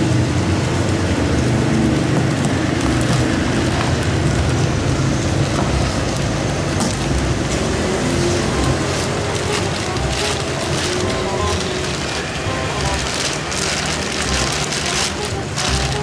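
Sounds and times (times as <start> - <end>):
loud rushing noise with rumble: 0.0 - 16.0
plastic bag crinkling: 5.4 - 16.0.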